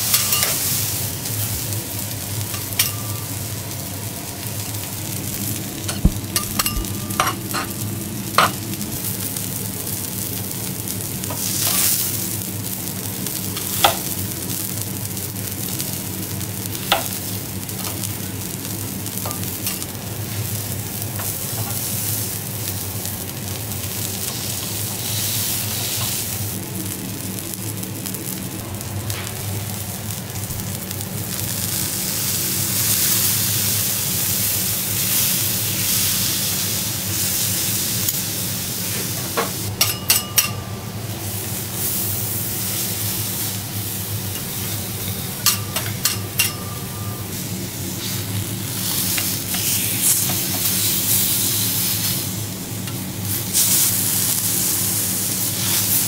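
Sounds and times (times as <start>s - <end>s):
low steady hum: 0.0s - 21.1s
meat sizzling on a griddle: 0.0s - 56.0s
metal spatulas clinking: 0.1s - 0.6s, 5.9s - 7.7s, 39.8s - 40.6s.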